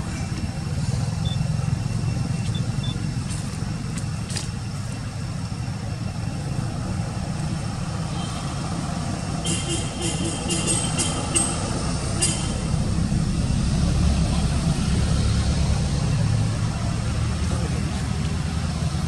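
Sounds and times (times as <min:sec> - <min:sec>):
low outdoor rumble: 0:00.0 - 0:19.0
faint high-pitched peeps: 0:02.4 - 0:03.0.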